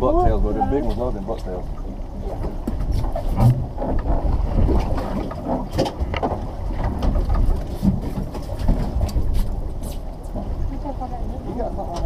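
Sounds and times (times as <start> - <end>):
water against boat hull: 0.0 - 12.0
wind buffeting microphone: 0.0 - 12.0.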